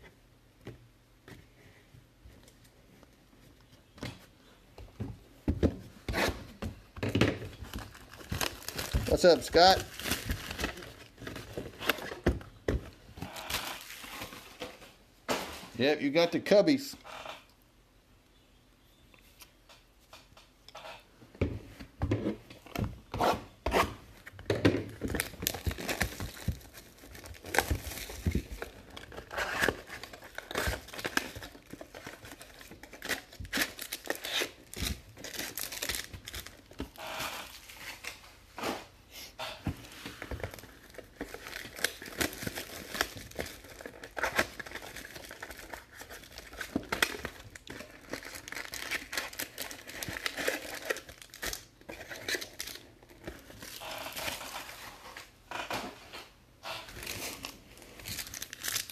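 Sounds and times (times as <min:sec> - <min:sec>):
card pack wrappers crinkling and tearing: 0:07.6 - 0:12.2, 0:13.2 - 0:14.6, 0:24.9 - 0:38.2, 0:40.4 - 0:55.2, 0:56.9 - 0:58.9.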